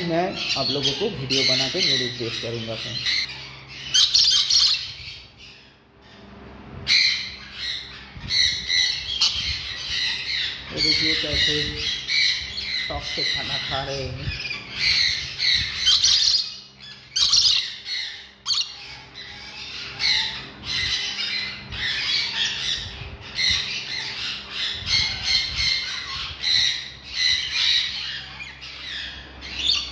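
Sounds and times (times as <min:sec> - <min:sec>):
parrots squawking: 0:00.0 - 0:29.9.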